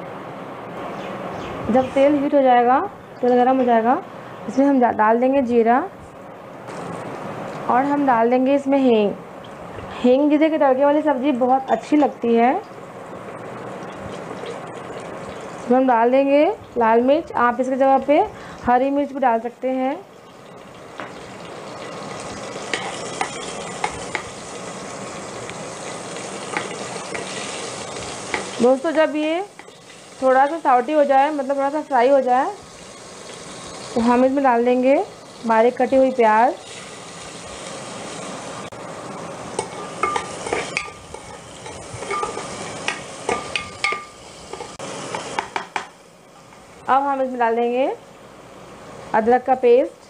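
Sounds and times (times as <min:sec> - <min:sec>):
spices sizzling in hot oil: 0:06.6 - 0:47.8
metal spoon clinking on pot: 0:39.6 - 0:42.5, 0:43.3 - 0:44.7.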